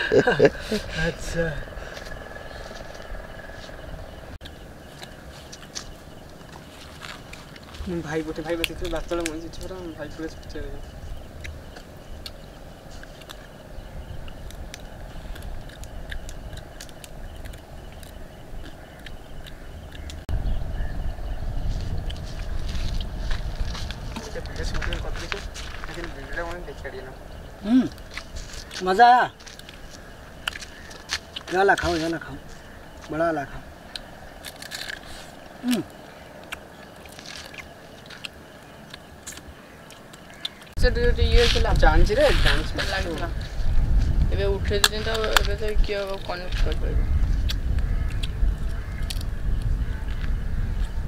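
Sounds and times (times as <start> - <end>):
low rumble: 0.0 - 5.4, 10.0 - 28.7
crab shells cracking and chewing: 4.4 - 7.7, 11.4 - 20.2, 29.4 - 31.9, 33.8 - 40.8, 47.4 - 50.9
person grunting: 27.6 - 27.9, 35.6 - 35.9
crab shell cracking: 33.8 - 40.7, 47.4 - 49.6.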